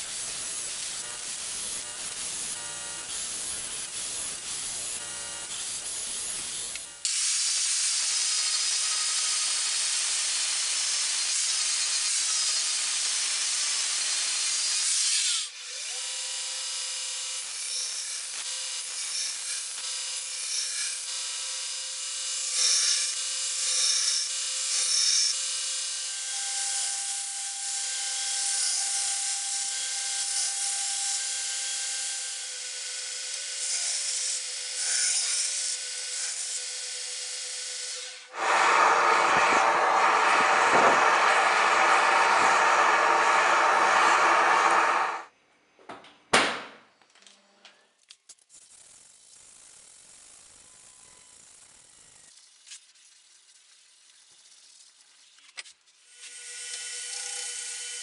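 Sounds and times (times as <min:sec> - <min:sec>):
grinder motor whine: 0:00.0 - 0:03.1, 0:38.2 - 0:45.3
belt grinder rasping on steel: 0:26.2 - 0:45.3.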